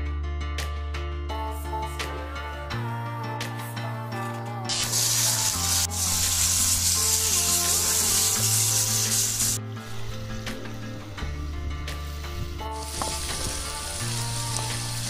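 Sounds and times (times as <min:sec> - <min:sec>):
background music: 0:00.0 - 0:15.0
chicken sizzling in a hot pan: 0:04.7 - 0:09.6, 0:11.9 - 0:15.0
spatula stirring: 0:04.7 - 0:09.6.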